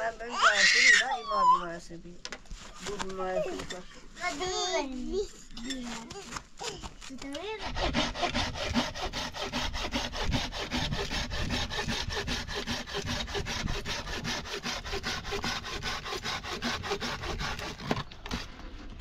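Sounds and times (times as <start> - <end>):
rapid rasping strokes: 7.3 - 19.0.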